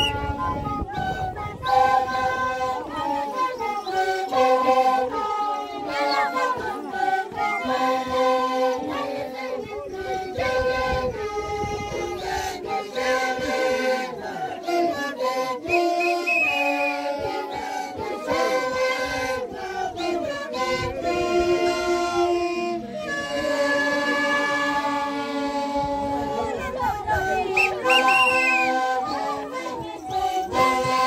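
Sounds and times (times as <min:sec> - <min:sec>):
wooden flutes playing: 0:00.0 - 0:31.0.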